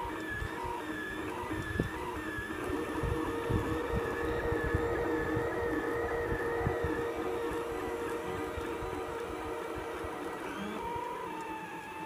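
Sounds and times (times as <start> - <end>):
steady hum: 0.0 - 12.0
stepper motors whining: 0.0 - 12.0.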